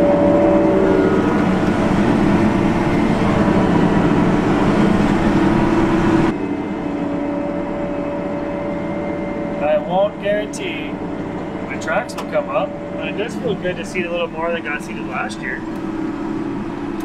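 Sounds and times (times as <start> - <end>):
tractor engine under load: 9.6 - 17.0.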